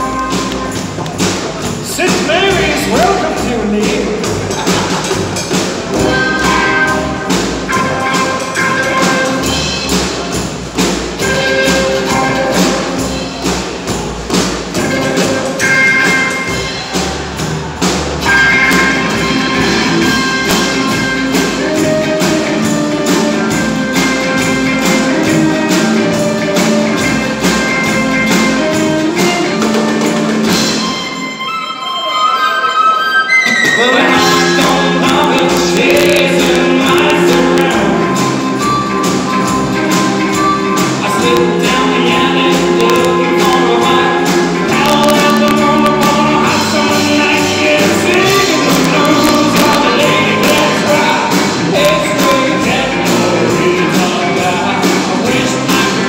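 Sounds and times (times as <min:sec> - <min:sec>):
slapped upright bass: 0:00.0 - 0:30.9, 0:33.6 - 0:56.0
rockabilly band playing: 0:00.0 - 0:56.0.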